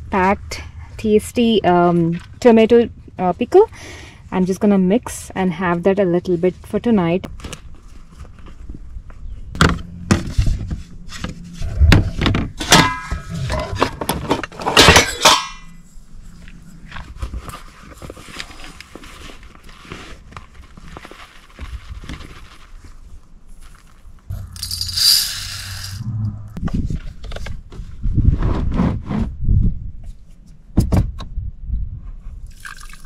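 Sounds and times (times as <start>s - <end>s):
rice cooker pot and lid clatter: 12.6s - 15.7s.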